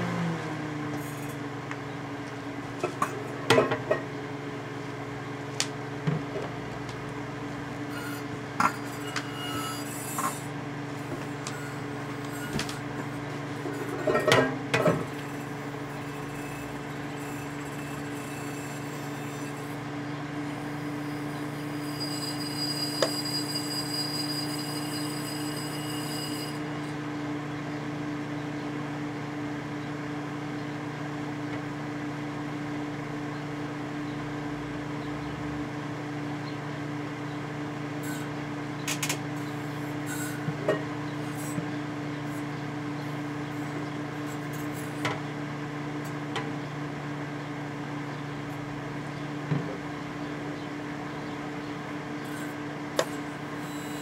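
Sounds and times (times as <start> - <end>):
microwave oven humming: 0.0 - 54.0
faint high whine: 21.6 - 26.6.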